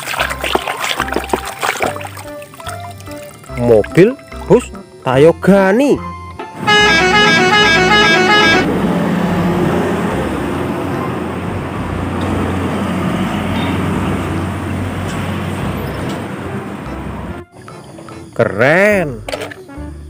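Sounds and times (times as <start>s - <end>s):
traffic noise: 6.4s - 18.5s
multi-tone musical horn: 6.6s - 8.8s.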